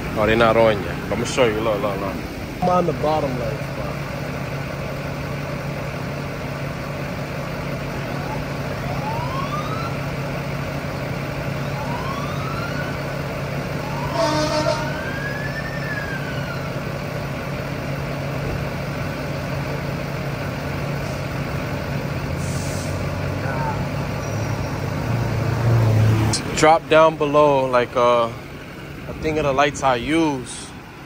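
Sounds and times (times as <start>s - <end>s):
engine idling: 0.0s - 25.1s, 26.3s - 31.0s
distant siren wailing: 7.7s - 17.7s, 23.0s - 26.2s.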